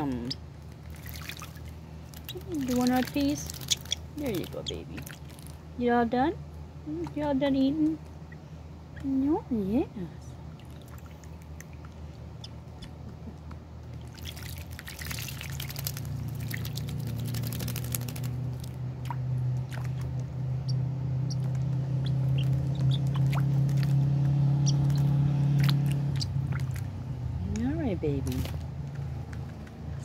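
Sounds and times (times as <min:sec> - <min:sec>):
water dripping: 0:00.0 - 0:05.6, 0:13.9 - 0:20.4, 0:21.3 - 0:27.7
bird splashing in water: 0:00.0 - 0:05.7, 0:10.5 - 0:12.1, 0:13.9 - 0:27.2
low engine drone: 0:00.0 - 0:30.0.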